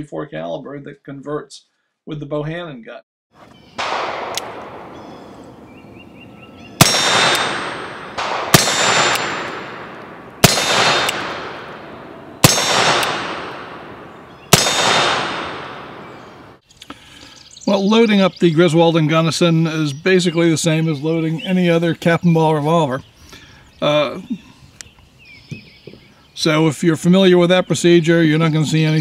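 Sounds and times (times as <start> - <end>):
revolver gunshots echoing: 3.7 - 16.6.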